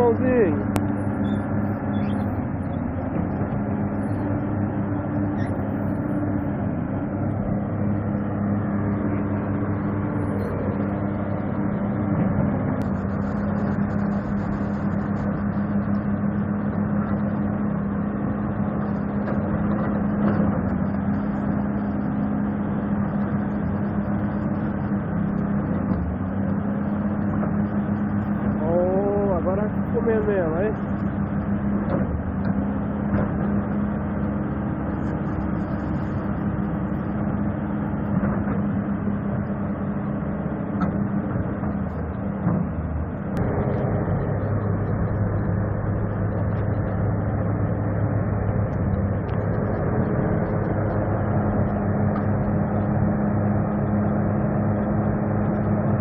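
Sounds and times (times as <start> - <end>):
diesel engine droning: 0.0 - 56.0.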